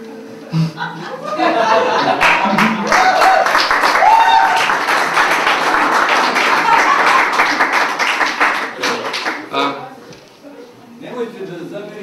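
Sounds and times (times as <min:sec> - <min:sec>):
audience applauding: 0:01.9 - 0:09.8
short cheers: 0:02.8 - 0:04.8.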